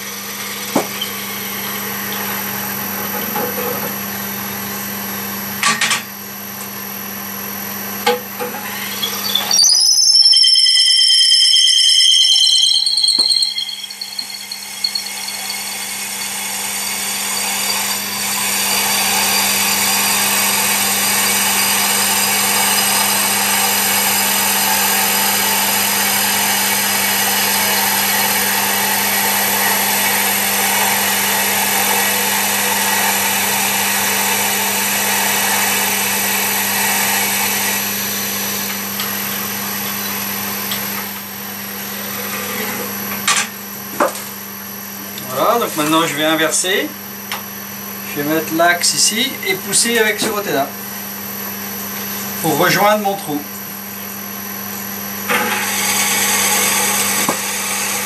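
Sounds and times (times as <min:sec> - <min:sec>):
drill boring into wood: 0:08.6 - 0:38.8, 0:55.4 - 0:58.0.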